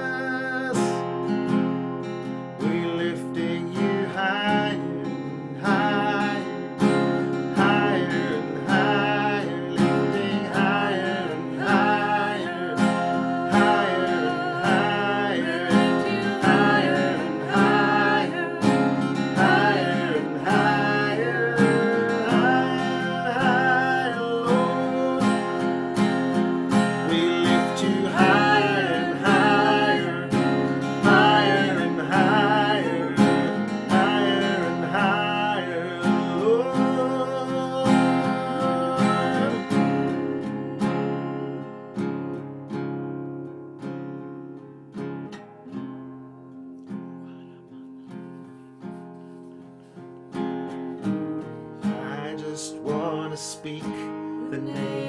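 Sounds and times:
man and woman singing: 0.0s - 1.2s, 2.6s - 41.6s, 51.8s - 55.0s
acoustic guitar strumming: 0.0s - 55.0s.

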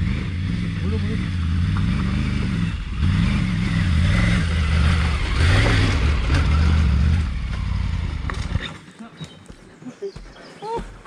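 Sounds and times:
motorcycle engine labouring: 0.0s - 8.8s.

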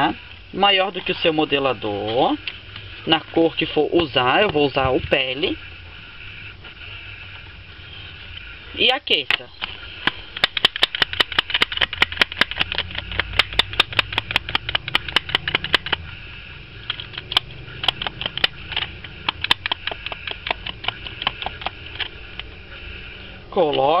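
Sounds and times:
hair straightener plates clicking: 9.3s - 16.0s.

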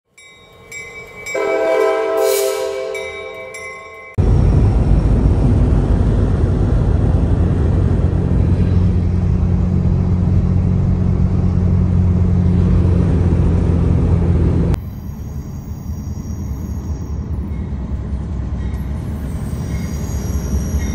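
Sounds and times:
car interior road drone: 4.2s - 14.9s.

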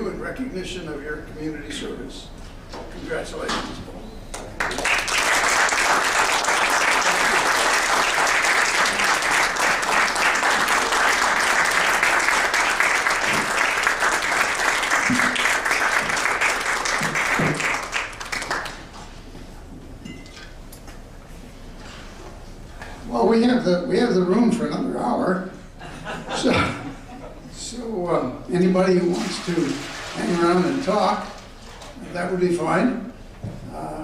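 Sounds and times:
audience applauding: 4.4s - 19.0s.

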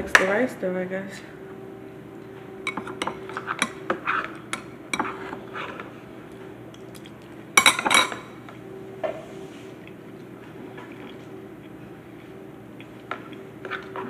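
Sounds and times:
spoon clinking against ceramic bowl: 2.7s - 5.2s, 7.6s - 8.2s
spoon and bowl clatter: 7.6s - 8.2s.

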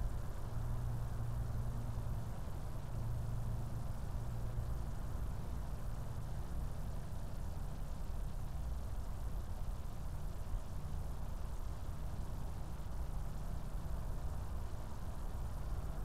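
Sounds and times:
low rumble with faint hiss: 0.0s - 16.0s.

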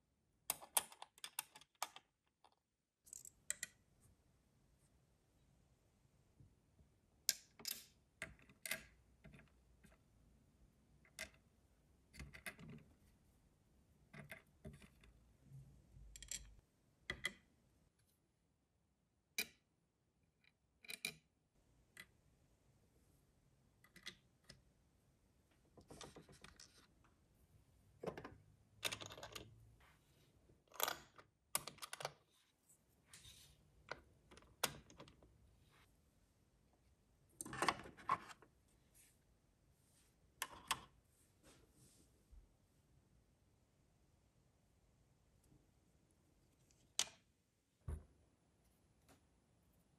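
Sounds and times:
toy kitchen pieces clicking: 0.5s - 3.8s, 28.2s - 29.5s.

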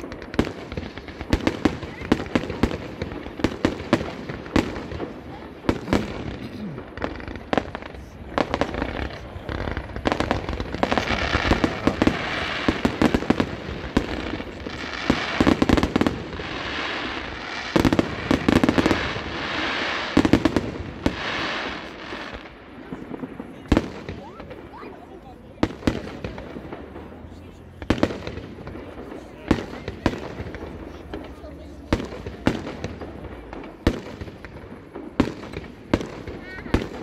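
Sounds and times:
crackling firework stars: 0.0s - 37.0s.

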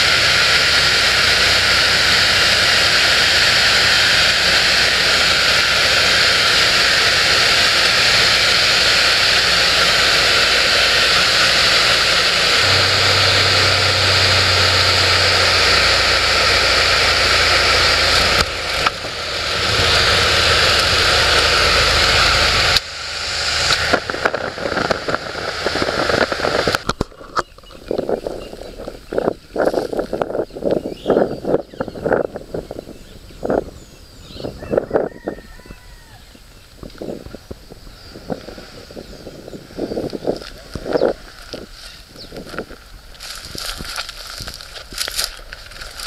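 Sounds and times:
rushing air hiss: 0.0s - 26.8s, 36.0s - 45.1s
propeller aircraft engine: 0.0s - 34.6s.

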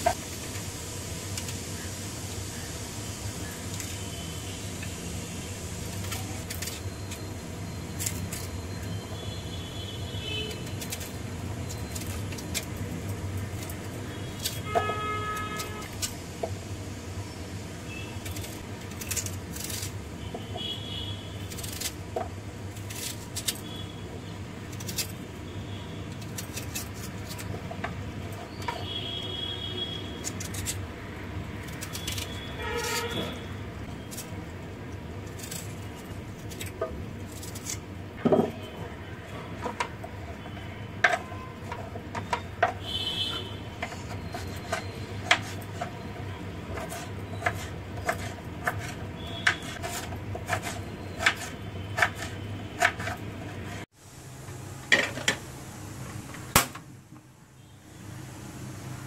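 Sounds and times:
vehicle horn: 9.0s - 10.8s, 14.1s - 16.0s, 20.2s - 21.5s, 28.7s - 30.3s, 32.0s - 33.6s, 42.8s - 43.7s, 49.2s - 49.7s.

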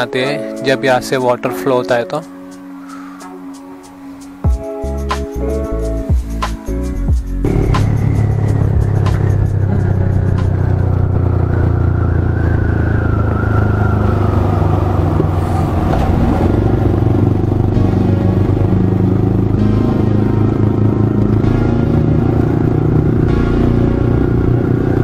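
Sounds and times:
motorcycle engine running: 5.9s - 25.0s.

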